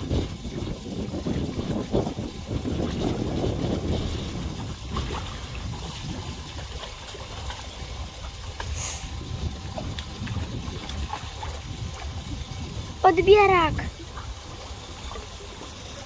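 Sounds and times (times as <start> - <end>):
water lapping against pilings: 0.0 - 16.0
wind rumbling on microphone: 0.0 - 16.0.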